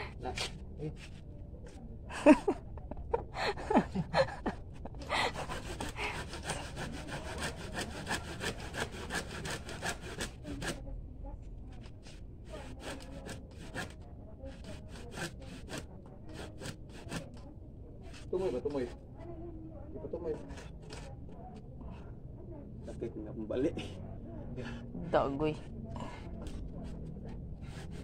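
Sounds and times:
hand saw cutting wood: 0:05.2 - 0:10.8, 0:12.5 - 0:17.4, 0:26.4 - 0:28.0.

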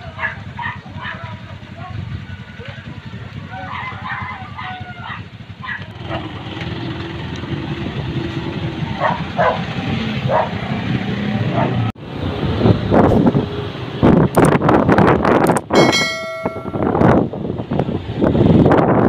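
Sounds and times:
motorcycle engines idling: 0:00.0 - 0:10.8, 0:15.6 - 0:17.9
motorcycle riding along: 0:00.0 - 0:19.0
dog barking: 0:00.1 - 0:02.0, 0:03.6 - 0:06.3, 0:09.0 - 0:09.7, 0:10.3 - 0:10.7, 0:11.5 - 0:11.8.

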